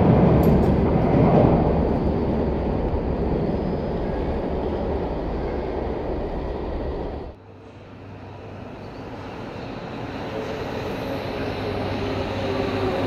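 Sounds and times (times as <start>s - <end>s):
metro train rumble: 0.0s - 13.0s
metro train whine: 0.0s - 13.0s.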